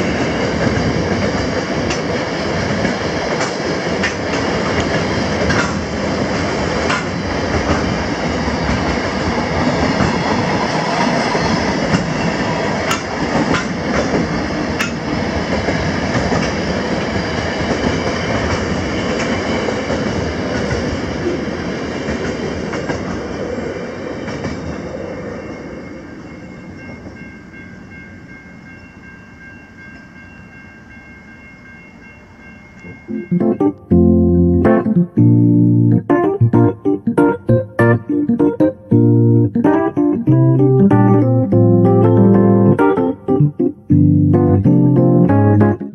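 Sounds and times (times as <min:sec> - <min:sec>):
freight train wheels rumbling: 0:00.0 - 0:34.9.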